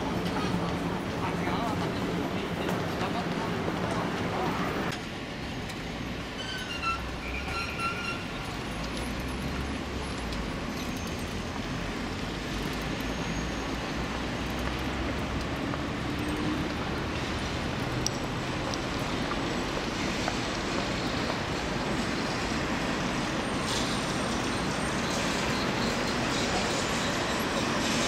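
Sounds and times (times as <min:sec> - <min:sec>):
distant traffic: 0:00.0 - 0:28.0
short high squeaks: 0:06.4 - 0:08.3.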